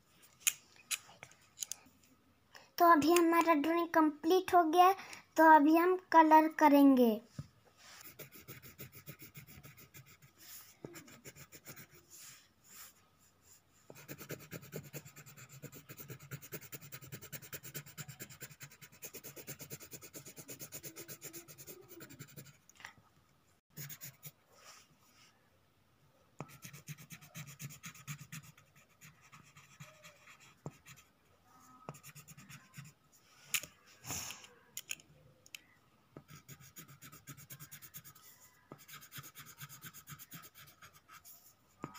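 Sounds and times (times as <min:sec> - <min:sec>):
pencil shading on paper: 0:08.0 - 0:13.0, 0:13.9 - 0:22.6, 0:23.7 - 0:24.4, 0:26.4 - 0:31.2, 0:31.9 - 0:33.0, 0:36.2 - 0:41.9.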